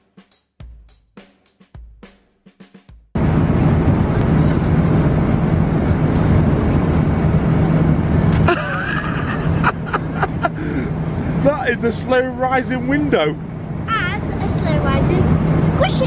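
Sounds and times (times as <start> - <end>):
airliner cabin noise: 3.2 - 16.0
child's voice: 13.9 - 16.0.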